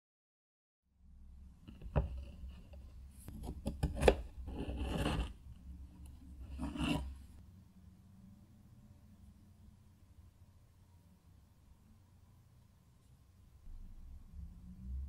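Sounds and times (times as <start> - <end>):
knife scraping cuts: 3.2 - 5.4, 6.4 - 7.2.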